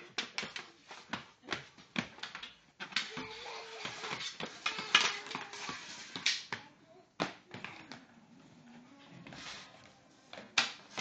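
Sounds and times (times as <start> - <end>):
hockey sticks clacking on hard floor: 0.0 - 8.1, 10.3 - 11.0.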